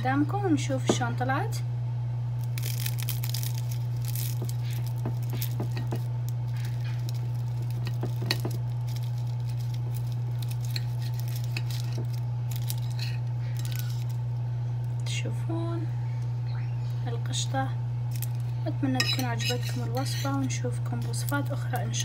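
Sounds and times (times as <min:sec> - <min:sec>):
steady low hum: 0:00.0 - 0:22.0
pastry crunching under knife: 0:02.4 - 0:14.2, 0:18.1 - 0:22.0.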